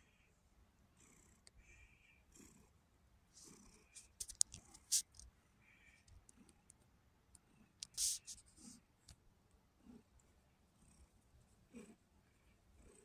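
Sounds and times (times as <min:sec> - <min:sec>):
scratchy rustle: 0:03.4 - 0:05.2, 0:07.8 - 0:08.8
quiet clicks: 0:04.0 - 0:05.3, 0:06.0 - 0:08.0.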